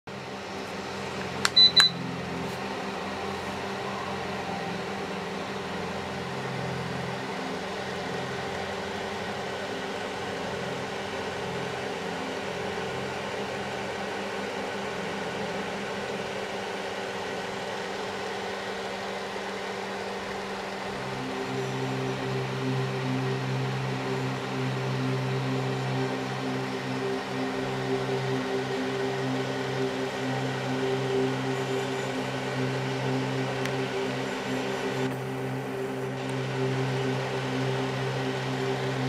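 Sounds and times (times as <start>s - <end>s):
fan heater humming: 0.1s - 39.0s
short high electronic beeps: 1.5s - 2.0s.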